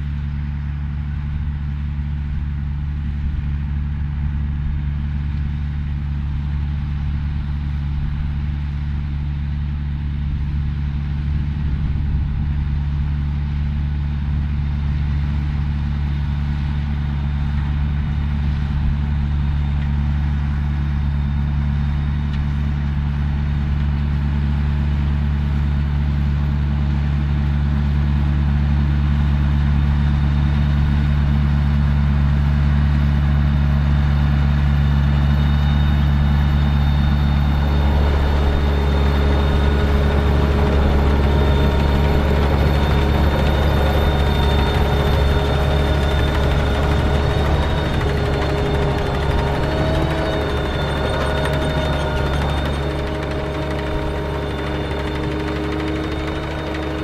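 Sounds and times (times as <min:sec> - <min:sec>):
tractor diesel engine running: 0:34.3 - 0:57.0
harvester machinery noise: 0:35.9 - 0:57.0.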